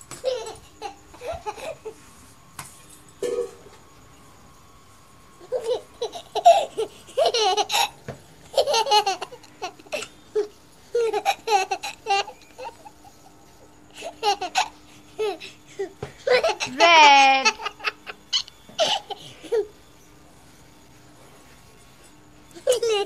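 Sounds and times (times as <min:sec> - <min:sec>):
baby laughing and babbling: 0:22.6 - 0:23.0.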